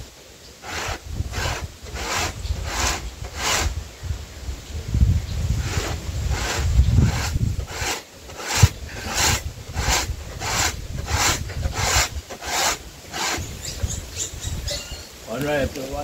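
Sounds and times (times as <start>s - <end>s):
corn rasping on metal grater: 0.6s - 3.8s, 5.6s - 13.8s.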